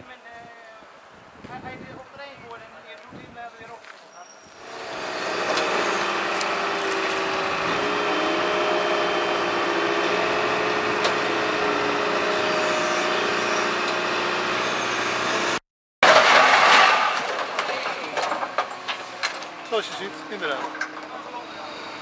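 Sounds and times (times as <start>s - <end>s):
crane diesel engine running: 4.6s - 15.6s, 18.1s - 22.0s.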